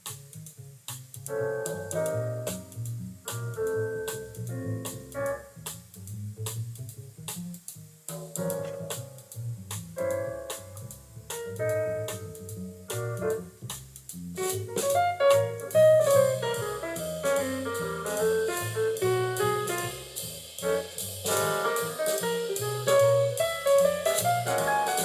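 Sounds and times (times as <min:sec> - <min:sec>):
bass line: 0:00.0 - 0:25.0
light drums: 0:00.0 - 0:25.0
instrumental piano music: 0:01.2 - 0:05.9, 0:08.1 - 0:25.0.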